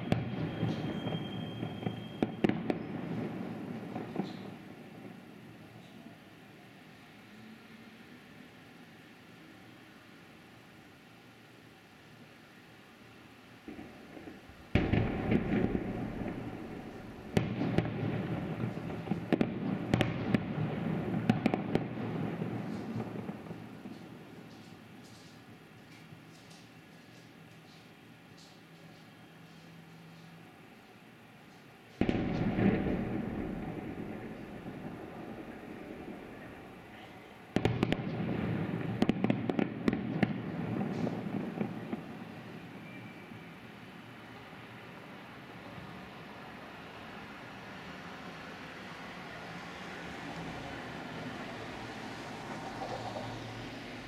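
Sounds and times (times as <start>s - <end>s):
firework booms: 13.7s - 24.2s, 32.0s - 42.3s.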